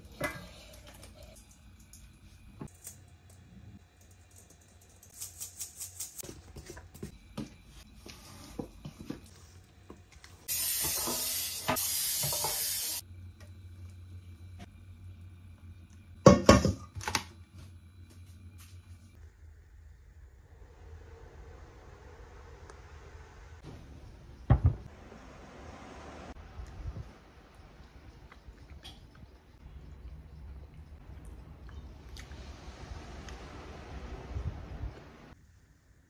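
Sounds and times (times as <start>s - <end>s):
loud hissing bursts: 10.5s - 13.0s.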